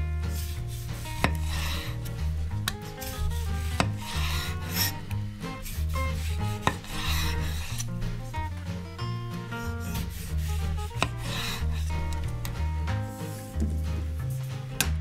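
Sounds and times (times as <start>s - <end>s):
background music: 0.0s - 15.0s
knife sawing through tomato: 0.2s - 8.4s, 9.5s - 12.5s
knife tapping wooden board: 1.2s - 1.9s, 2.6s - 4.9s, 6.2s - 7.8s, 10.9s - 12.7s.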